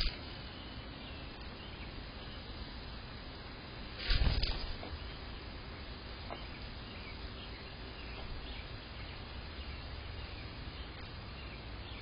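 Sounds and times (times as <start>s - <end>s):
steady hiss: 0.0s - 12.0s
faint bird chirps: 4.1s - 12.0s.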